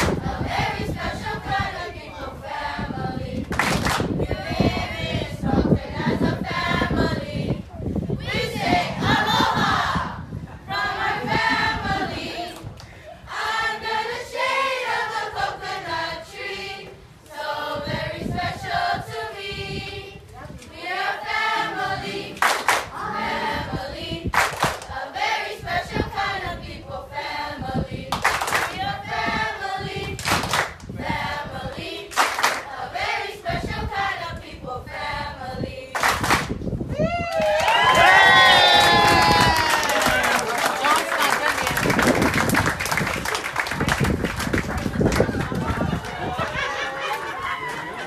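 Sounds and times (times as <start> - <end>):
clapping: 3.5 - 4.1, 22.4 - 22.9, 24.4 - 24.9, 28.1 - 28.8, 30.2 - 30.8, 32.1 - 32.6, 36.0 - 36.5, 38.8 - 46.2
children singing in chorus: 20.8 - 24.3.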